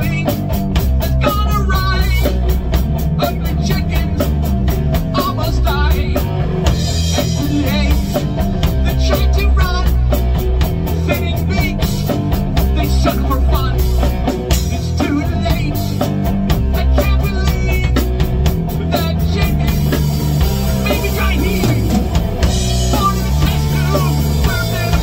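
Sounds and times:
man singing into microphone: 0:00.0 - 0:00.5, 0:01.1 - 0:02.4, 0:03.2 - 0:04.4, 0:05.1 - 0:06.3, 0:07.2 - 0:10.0, 0:11.0 - 0:12.0, 0:12.7 - 0:13.9, 0:14.6 - 0:16.0, 0:16.7 - 0:18.0, 0:18.8 - 0:20.1, 0:20.7 - 0:22.0, 0:22.9 - 0:25.0
bass guitar: 0:00.0 - 0:25.0
drum kit with cymbals: 0:00.0 - 0:25.0
electric guitar: 0:00.0 - 0:25.0.

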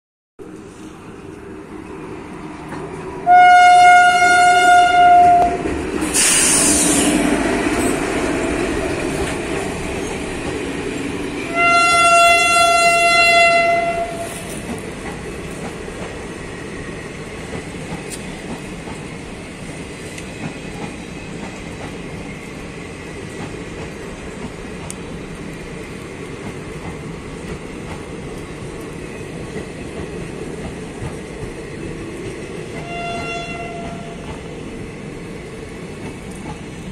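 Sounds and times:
rush of passing locomotive: 0:00.4 - 0:36.9
train coaches rumbling: 0:00.4 - 0:36.9
locomotive horn blasts: 0:03.2 - 0:05.6, 0:11.5 - 0:14.4, 0:32.8 - 0:34.2
train wheel clicks: 0:14.3 - 0:16.3, 0:17.4 - 0:22.6, 0:23.2 - 0:34.6, 0:35.9 - 0:36.9.

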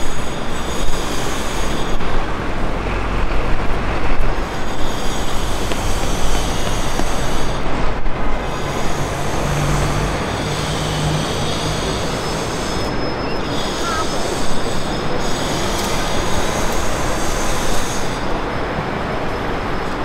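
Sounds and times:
passing traffic rush: 0:00.0 - 0:20.0.

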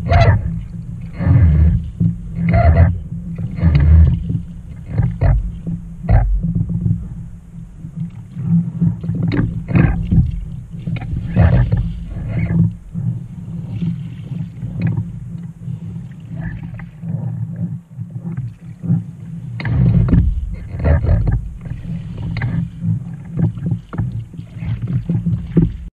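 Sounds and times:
paddle strokes splashing water: 0:00.0 - 0:25.9
wind rumble on microphone: 0:00.0 - 0:25.9.

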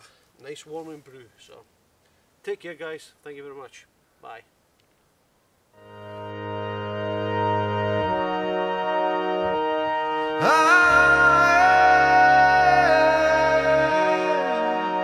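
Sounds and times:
high melody line: 0:05.8 - 0:15.0
sustained held chords: 0:05.8 - 0:15.0.

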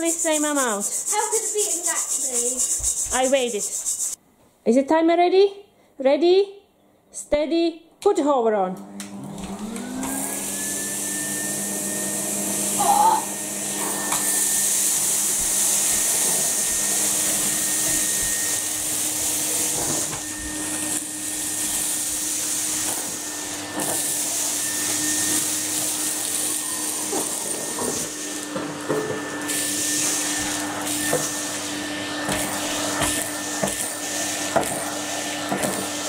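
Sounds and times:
vacuum cleaner running: 0:08.8 - 0:36.0.

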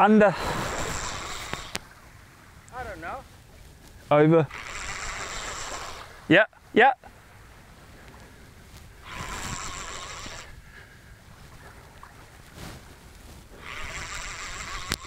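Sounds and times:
fishing reel whirring: 0:00.6 - 0:01.8, 0:04.5 - 0:06.1, 0:09.0 - 0:10.6, 0:13.6 - 0:15.0.

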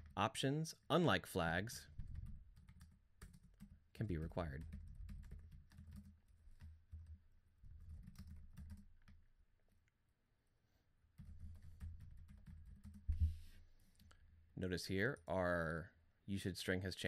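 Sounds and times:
typing on keyboard: 0:01.9 - 0:09.3, 0:11.2 - 0:13.2.

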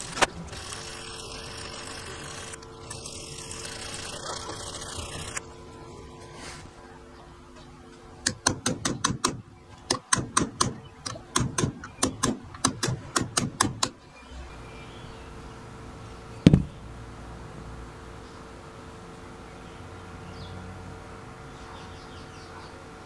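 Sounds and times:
pin punch tapping on brass: 0:08.2 - 0:14.0
lock case knocking on bench: 0:16.5 - 0:16.8.

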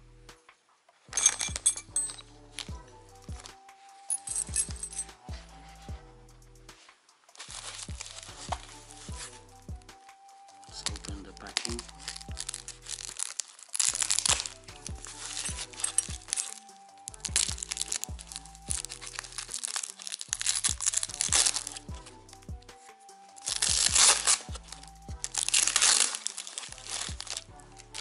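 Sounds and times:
background music with bass line: 0:00.0 - 0:00.5, 0:01.1 - 0:28.0
foam crinkling: 0:06.8 - 0:09.4, 0:10.6 - 0:22.1, 0:23.3 - 0:28.0
packing tape peeling and tearing: 0:07.3 - 0:09.3, 0:10.6 - 0:22.1, 0:23.3 - 0:28.0.

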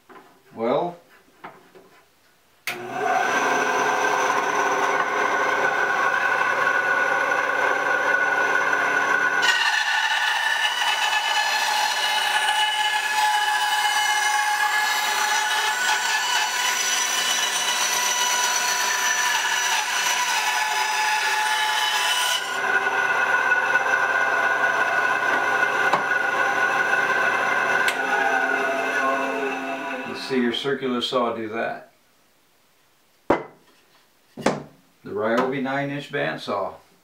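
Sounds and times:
band saw motor whine: 0:02.8 - 0:30.4
band saw blade rasping through wood: 0:09.2 - 0:30.3.

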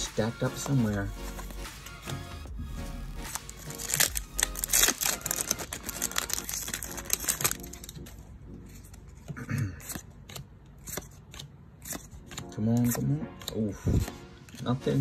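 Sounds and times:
foil pack tearing and crinkling: 0:03.2 - 0:08.1.

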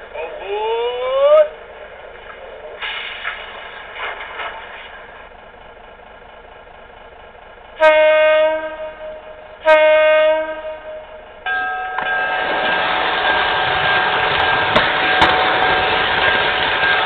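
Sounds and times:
diesel engine running: 0:00.0 - 0:11.5
train horn blasts: 0:07.8 - 0:11.4.

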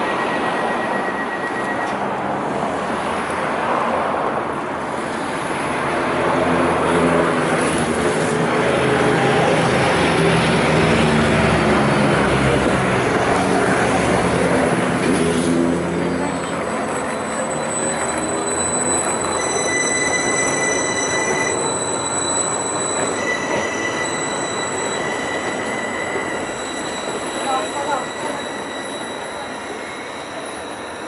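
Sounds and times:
high steady tone: 0:00.0 - 0:02.4, 0:15.9 - 0:31.0
diesel train engines running: 0:00.0 - 0:31.0.

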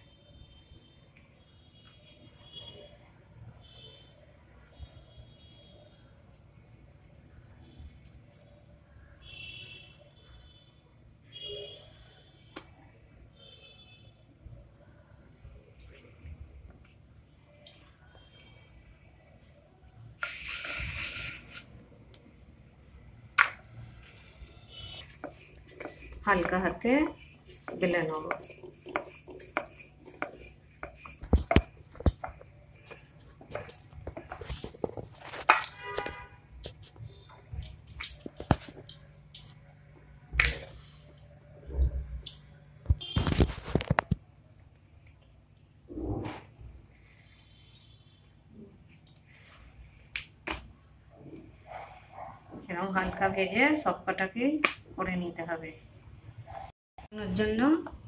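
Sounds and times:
dough rustling on board: 0:23.8 - 0:37.0.

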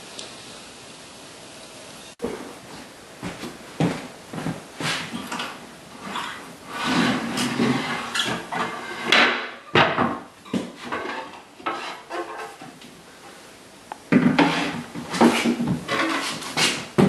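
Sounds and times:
wood scraping on floor: 0:03.2 - 0:12.9, 0:14.1 - 0:17.0.

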